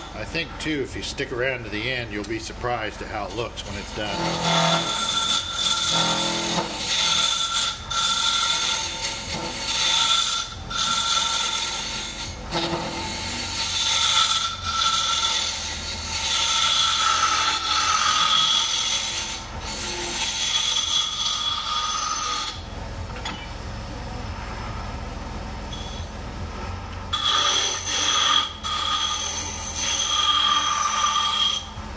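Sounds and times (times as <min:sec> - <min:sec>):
wood lathe running: 0:01.8 - 0:22.6, 0:27.1 - 0:31.9
turning tool cutting wood: 0:02.4 - 0:22.6, 0:27.1 - 0:31.8.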